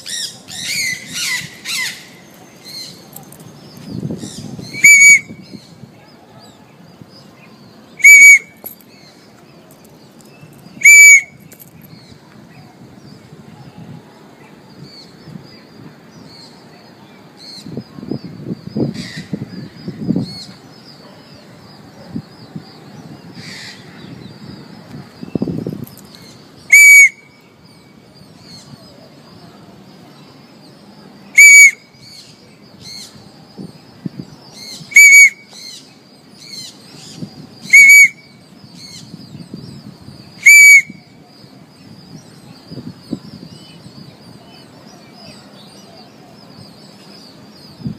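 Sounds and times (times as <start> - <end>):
parrot screeching: 35.0 - 35.4, 37.7 - 38.1, 40.4 - 40.9.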